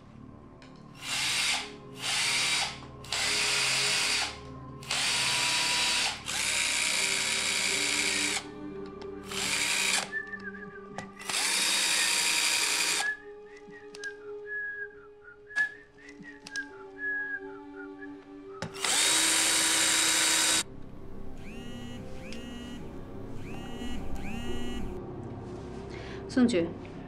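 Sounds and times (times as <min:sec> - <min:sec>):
cordless drill motor bursts: 0:01.0 - 0:08.4, 0:09.3 - 0:10.1, 0:11.2 - 0:13.1, 0:18.8 - 0:20.6, 0:21.4 - 0:22.8, 0:23.4 - 0:25.0.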